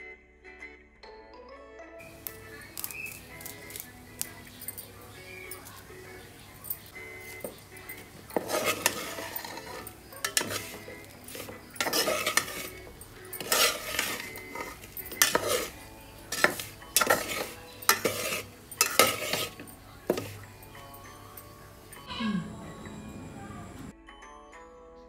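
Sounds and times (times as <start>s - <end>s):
metal spatula scraping a metal pan: 2.0s - 21.0s.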